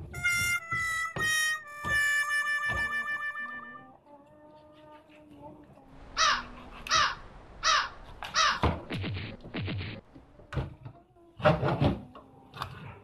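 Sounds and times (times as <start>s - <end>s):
bird cawing: 6.1s - 8.9s.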